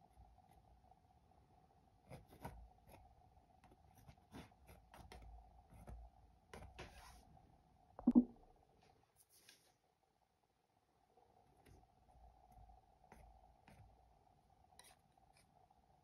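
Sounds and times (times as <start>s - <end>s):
faint steady hum: 0.0s - 16.0s
palette knife scraping paint: 14.7s - 15.6s.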